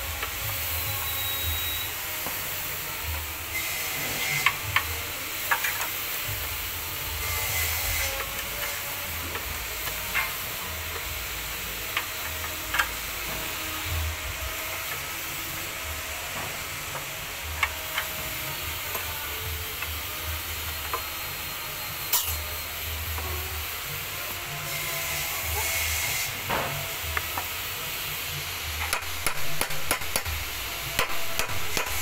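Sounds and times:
steady hiss: 0.0 - 32.0.

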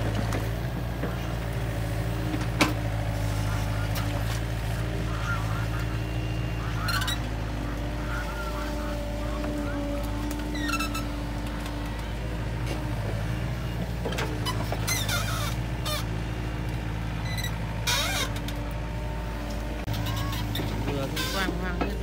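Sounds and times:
excavator diesel engine running: 0.0 - 22.0
high-pitched squeaks: 10.4 - 11.3, 14.4 - 16.1, 17.2 - 18.6, 19.9 - 21.6.

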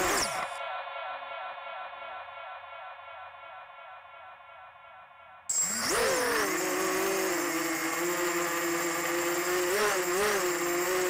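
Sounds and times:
quadcopter motors whining: 0.0 - 0.6, 5.5 - 11.0.

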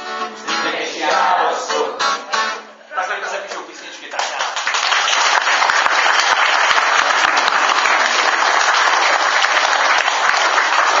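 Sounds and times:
people clapping: 3.5 - 11.0.

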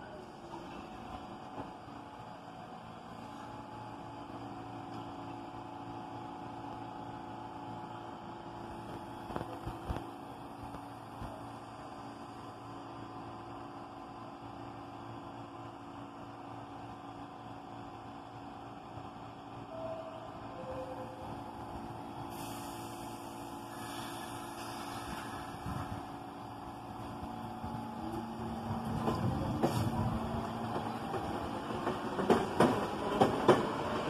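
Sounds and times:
subway train electrical hum: 0.0 - 34.0.

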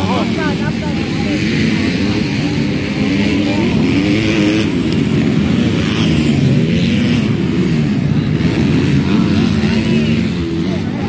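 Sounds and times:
motocross bike engines revving: 0.0 - 11.0
steady noisy wash: 0.0 - 11.0.

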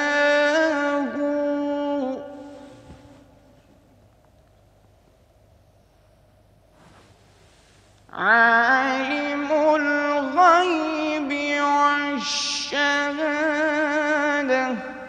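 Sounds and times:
man chanting melodically: 0.0 - 3.4, 8.1 - 15.0.

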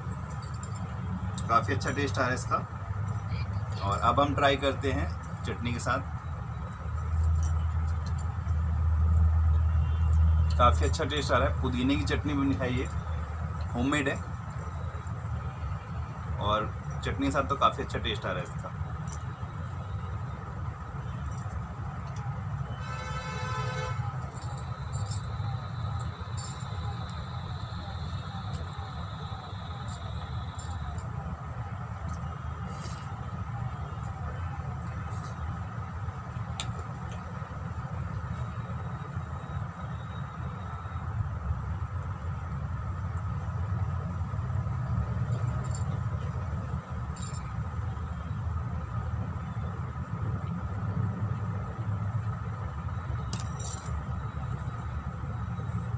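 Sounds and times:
background traffic rumble: 0.0 - 55.9
low background hum: 0.0 - 55.9
vehicle horn toot: 22.7 - 24.3.

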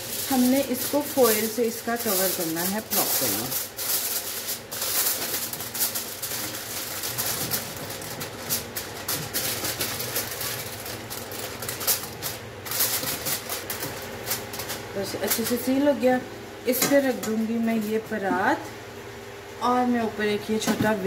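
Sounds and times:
aluminium foil crinkling: 0.0 - 16.0.

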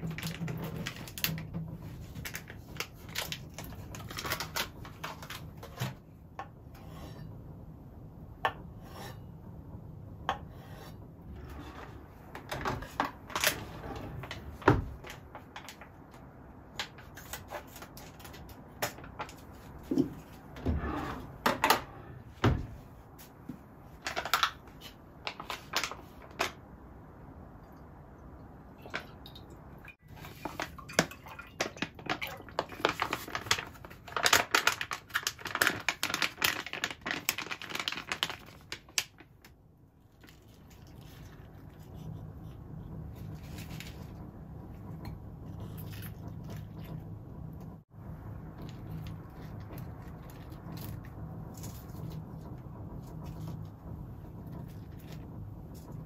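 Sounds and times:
plastic pouch rustling: 31.6 - 39.3.

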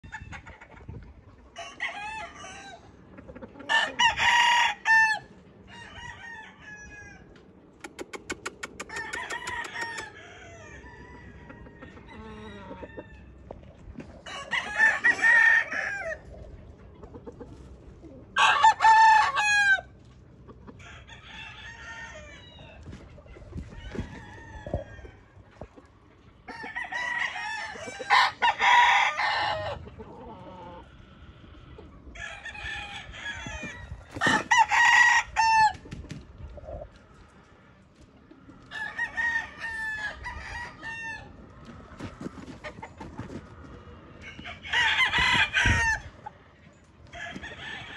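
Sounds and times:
roosters clucking: 0.0 - 47.9
rooster crowing: 1.6 - 2.8, 3.7 - 7.3, 8.8 - 13.4, 14.2 - 16.2, 18.4 - 19.9, 20.8 - 22.8, 23.8 - 25.2, 26.5 - 30.8, 32.1 - 35.7, 38.7 - 41.4, 44.2 - 46.2, 47.0 - 47.9.

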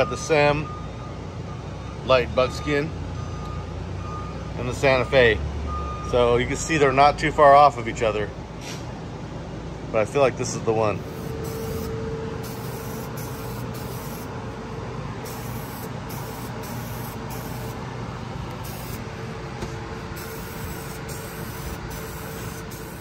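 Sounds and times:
aerosol spray can hissing: 11.0 - 14.3, 15.3 - 17.8, 18.5 - 19.1, 20.2 - 23.0.

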